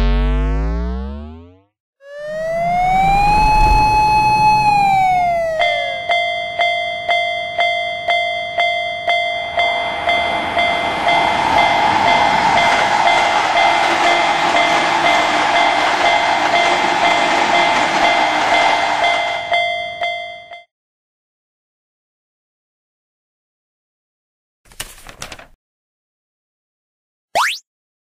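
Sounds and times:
railroad crossing bell clanging: 0:05.6 - 0:20.6
train rushing past: 0:09.2 - 0:20.2.

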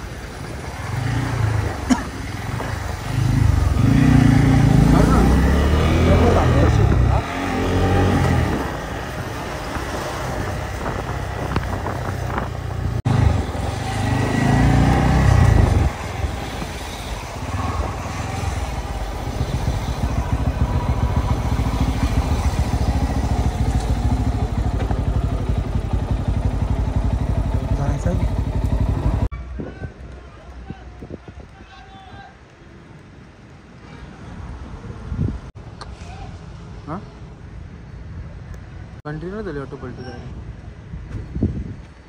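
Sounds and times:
wind and road noise: 0:00.0 - 0:42.0
motorcycle engine running: 0:17.6 - 0:29.3.

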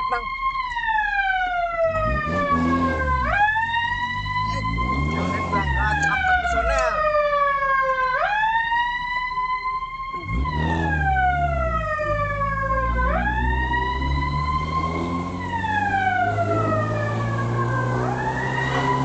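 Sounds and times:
vehicle engine running: 0:00.0 - 0:08.4, 0:09.8 - 0:19.0
siren wailing: 0:00.0 - 0:19.0.

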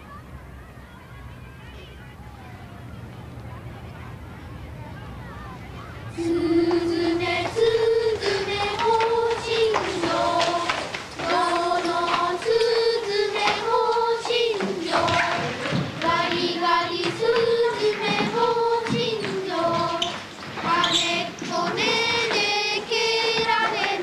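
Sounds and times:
children singing in unison: 0:06.2 - 0:24.0.

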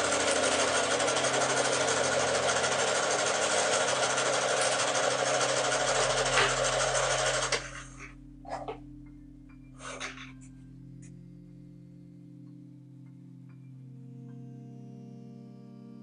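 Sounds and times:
sewing machine stitching: 0:00.0 - 0:07.9.

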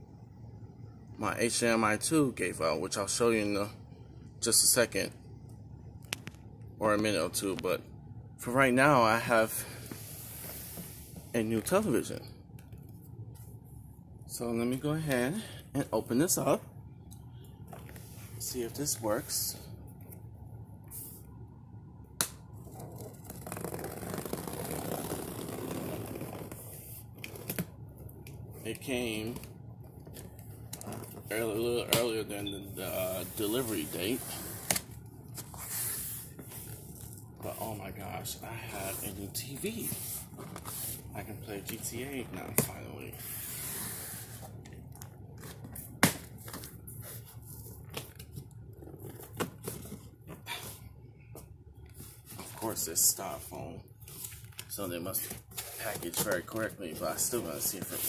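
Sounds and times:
cardboard rustling and scraping: 0:38.7 - 0:44.6, 0:45.4 - 0:50.4, 0:55.1 - 0:58.0
cardboard scraping and rustling: 0:55.1 - 0:58.0.

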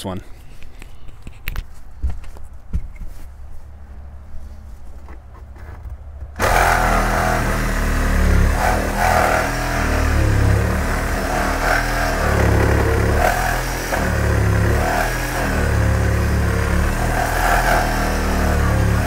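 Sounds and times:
power tool cutting steel: 0:06.4 - 0:19.0.

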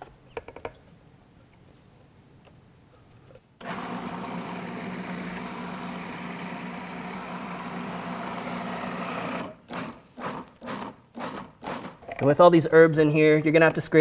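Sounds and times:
food processor motor humming: 0:03.6 - 0:12.0.

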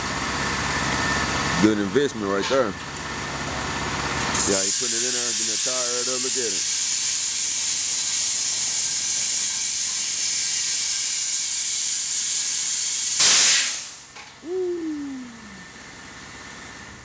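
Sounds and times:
compressed air hissing into tire: 0:04.5 - 0:09.2, 0:10.1 - 0:14.1
short burst of air: 0:13.2 - 0:15.7.

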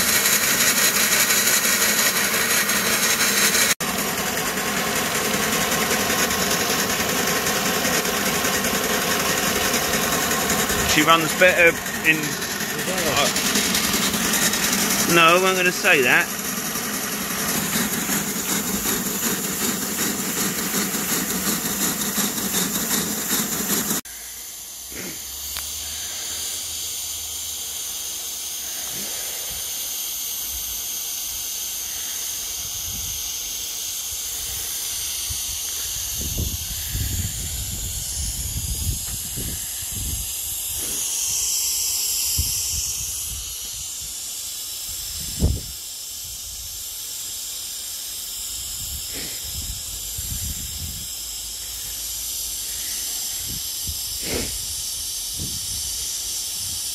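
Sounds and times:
steam locomotive running: 0:00.0 - 0:24.1, 0:28.1 - 0:45.6
steam hissing: 0:00.0 - 0:56.9.

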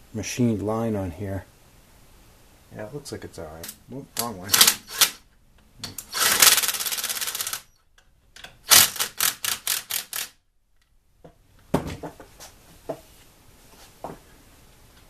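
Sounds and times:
socket ratchet clicking: 0:08.7 - 0:10.3.

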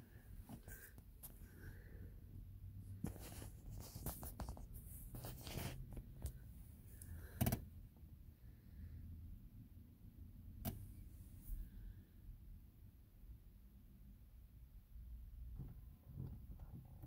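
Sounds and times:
low steady hum: 0:00.0 - 0:17.0
scratching and rustling: 0:02.9 - 0:06.4.

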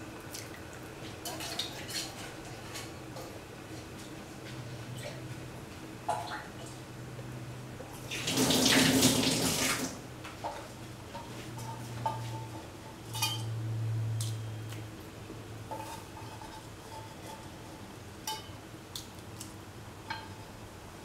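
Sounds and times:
metallic clinks against a pot: 0:13.1 - 0:13.5.

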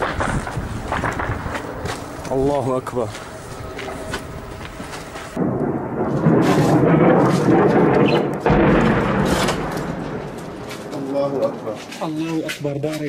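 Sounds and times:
airstrike rumble roar: 0:05.4 - 0:11.6.

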